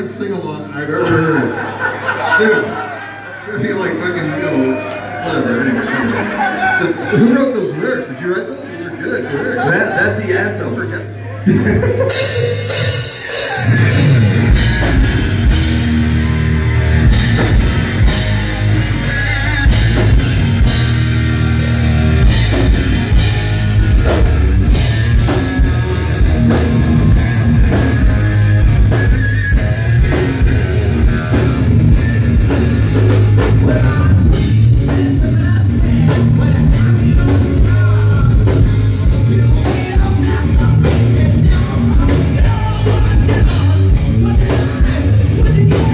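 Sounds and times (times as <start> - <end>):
bass guitar: 10.6 - 45.9
electric guitar: 11.4 - 45.9
drum kit: 11.5 - 45.9.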